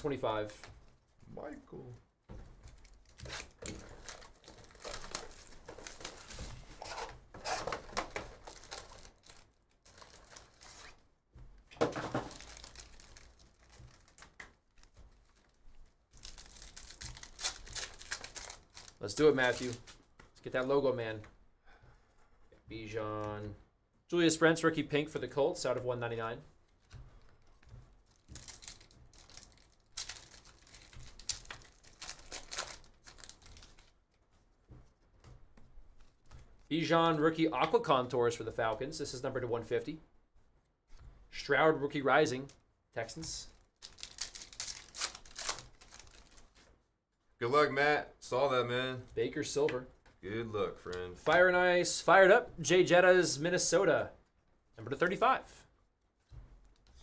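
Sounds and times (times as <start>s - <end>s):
foil packs crinkling: 2.7s - 11.0s, 11.9s - 20.0s, 27.2s - 34.0s, 43.5s - 46.7s.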